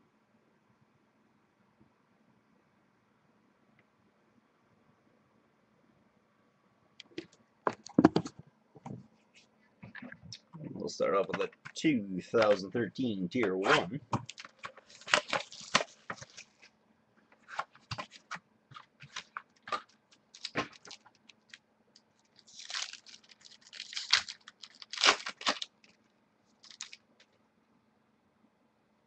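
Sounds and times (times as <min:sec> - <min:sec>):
foil wrapper crinkling and tearing: 0:14.3 - 0:16.7, 0:18.8 - 0:21.6, 0:22.2 - 0:26.0, 0:26.6 - 0:27.1.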